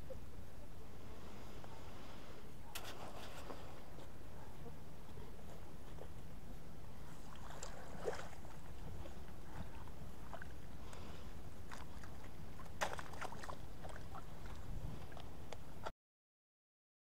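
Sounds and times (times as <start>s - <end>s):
water splashing and dripping: 11.7s - 15.3s.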